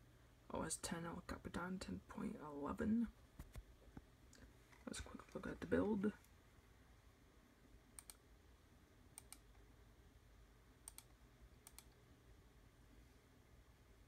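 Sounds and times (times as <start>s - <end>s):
low steady hum: 0.0s - 14.0s
faint mouse clicks: 8.0s - 8.2s, 9.2s - 9.6s, 10.8s - 12.0s.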